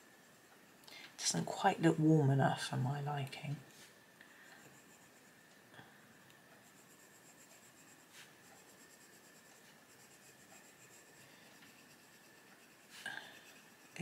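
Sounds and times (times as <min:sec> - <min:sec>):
pencil scratching on paper: 0:04.4 - 0:05.5, 0:06.6 - 0:14.0.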